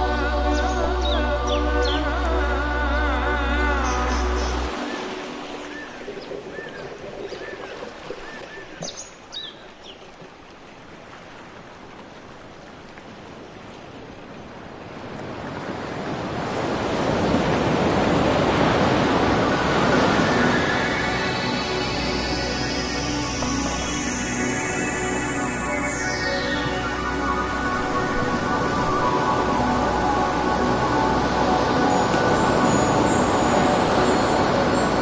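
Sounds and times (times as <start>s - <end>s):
music: 0.0s - 6.2s, 19.4s - 35.0s
rushing water: 0.0s - 35.0s.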